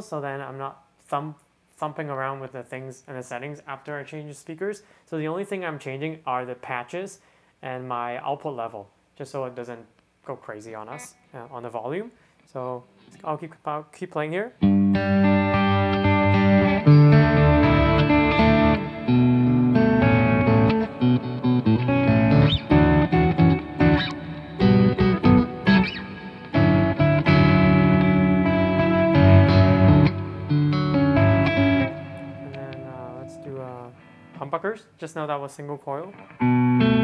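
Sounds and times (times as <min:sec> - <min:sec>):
electric guitar chords and notes: 0:14.6 - 0:34.5, 0:36.1 - 0:37.0.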